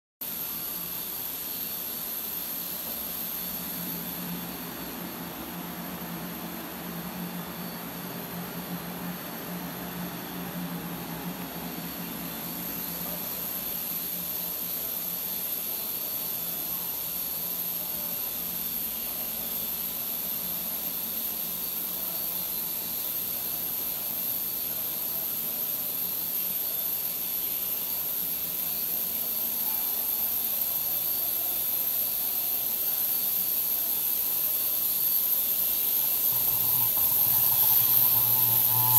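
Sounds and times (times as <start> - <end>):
thin high whine: 0.2 - 38.9
machinery hissing: 31.9 - 38.9.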